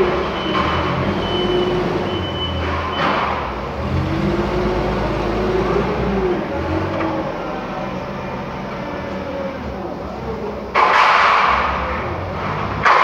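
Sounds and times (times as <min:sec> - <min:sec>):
reversing alarm beeping: 0:00.0 - 0:03.4
forklift engine running: 0:00.0 - 0:13.0.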